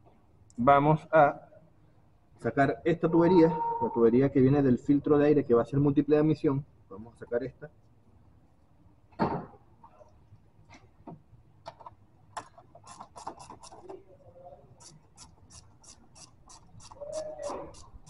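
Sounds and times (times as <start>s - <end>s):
ratchet wrench clicking: 14.8s - 18.0s.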